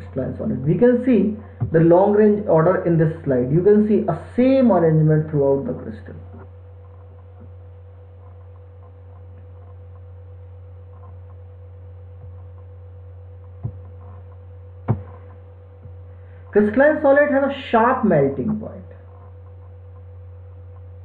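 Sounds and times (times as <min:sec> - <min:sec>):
electrical hum: 0:00.0 - 0:21.0.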